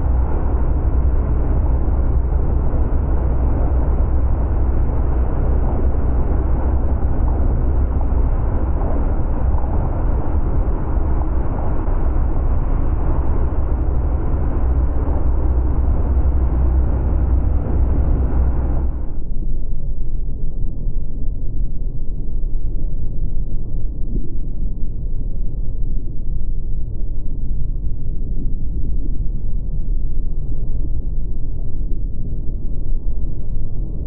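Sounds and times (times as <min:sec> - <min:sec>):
outboard motor running: 0:00.0 - 0:19.1
wind rushing: 0:00.0 - 0:19.2
deep rumble buffeting microphone: 0:00.0 - 0:34.0.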